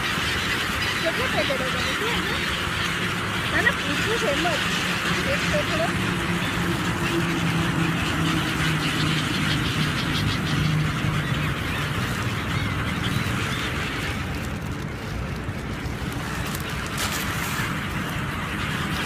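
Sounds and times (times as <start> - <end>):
gulls squealing: 0.0 - 14.6
constant rushing noise: 0.0 - 19.0
low engine drone: 1.6 - 19.0.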